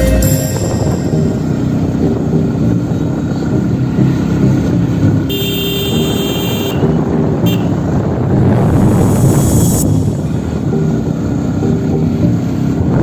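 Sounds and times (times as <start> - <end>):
high steady tone: 0.0 - 3.0, 9.1 - 11.0
motorcycle engine rumbling: 0.0 - 13.0
road noise: 0.0 - 13.0.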